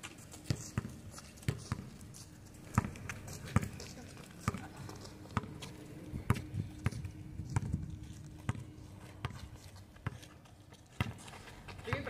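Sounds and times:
basketball bouncing on concrete: 0.4s - 1.9s, 2.7s - 3.8s, 5.3s - 5.7s, 6.3s - 7.8s, 8.4s - 10.3s, 11.0s - 12.0s.

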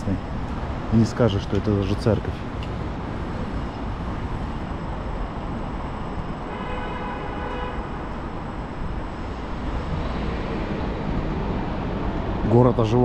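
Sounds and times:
city street traffic: 0.0s - 13.0s
horn-like tone: 6.4s - 8.1s.

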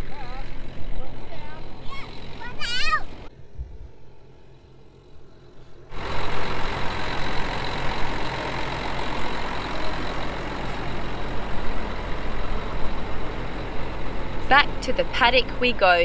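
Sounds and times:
diesel tractor engine running: 0.0s - 16.0s
faint low rumble: 3.2s - 6.0s.

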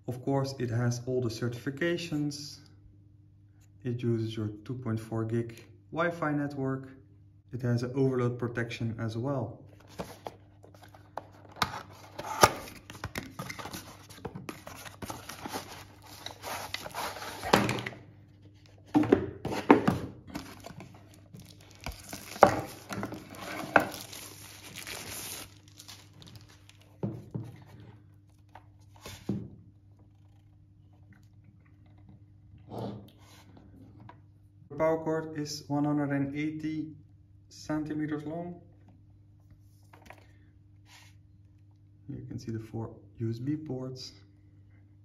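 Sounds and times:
cardboard and wrapping rustling: 9.8s - 17.7s, 19.5s - 27.8s.

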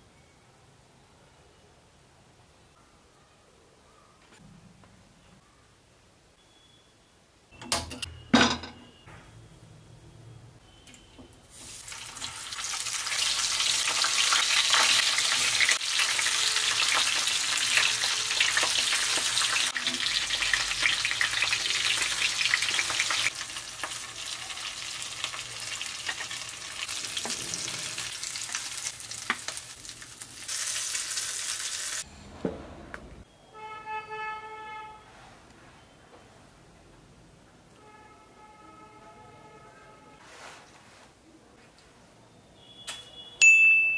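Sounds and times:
chillies sizzling in hot oil: 11.4s - 32.1s.

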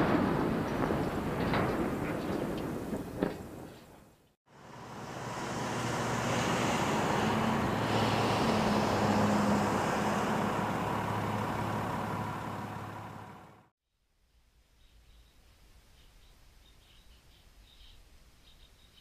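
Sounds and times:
engine running with low hum: 4.5s - 13.7s
broad rushing noise: 4.6s - 13.6s.

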